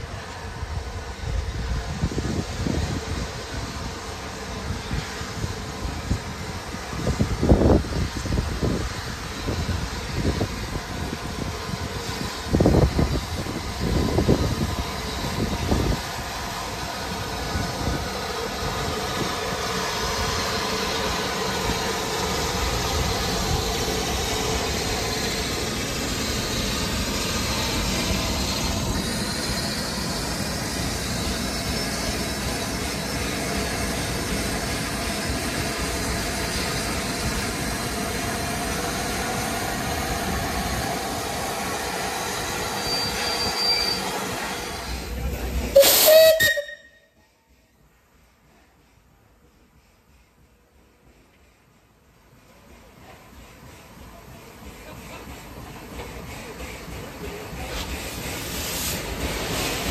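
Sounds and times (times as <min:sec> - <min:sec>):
train wheels rumbling: 0:00.0 - 0:59.9
high squeal: 0:24.6 - 0:33.9, 0:42.1 - 0:45.0, 0:45.8 - 0:47.4.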